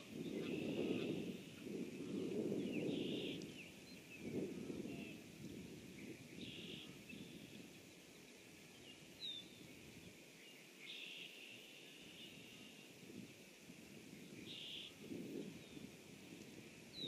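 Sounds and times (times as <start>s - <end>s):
distant high-pitched wildlife calling: 0.1s - 4.1s, 6.4s - 7.6s, 10.8s - 12.9s, 14.4s - 15.0s.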